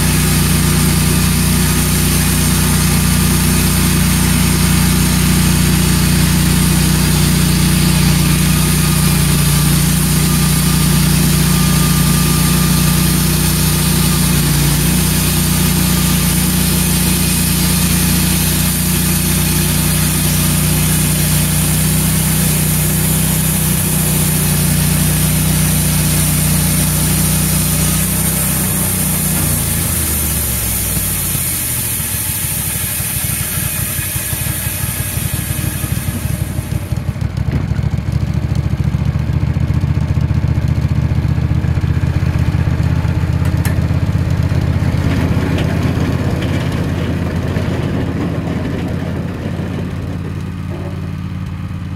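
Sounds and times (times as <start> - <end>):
band blade sawing through log: 0.0 - 37.2
gas engine running under load: 0.0 - 51.9.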